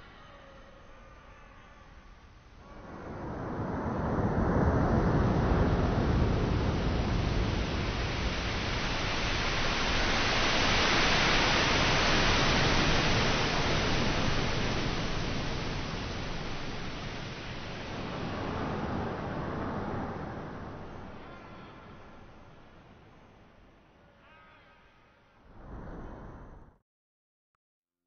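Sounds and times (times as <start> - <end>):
ocean waves breaking on sand: 2.7 - 22.8.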